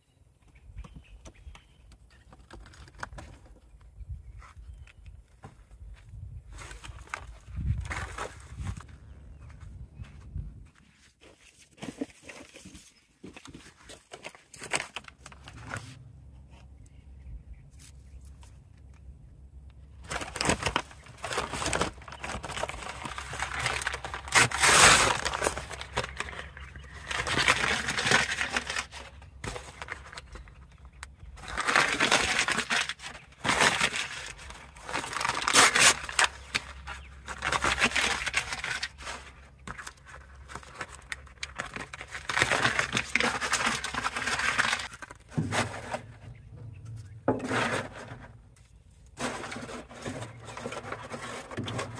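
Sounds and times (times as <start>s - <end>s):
paper bags tearing and crumpling: 14.1s - 16.1s, 20.0s - 46.2s, 49.2s - 51.9s.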